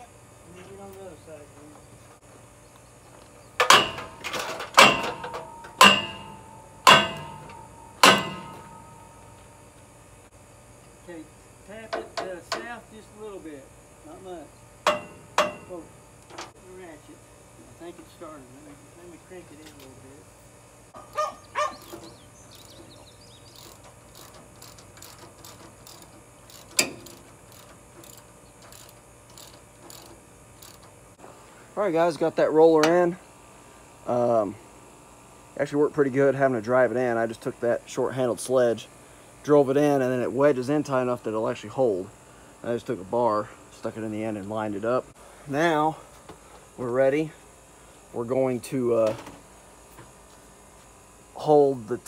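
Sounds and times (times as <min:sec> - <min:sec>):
sledgehammer striking steel: 0:03.6 - 0:09.5, 0:14.9 - 0:15.8
ratchet wrench clicking: 0:23.5 - 0:30.9.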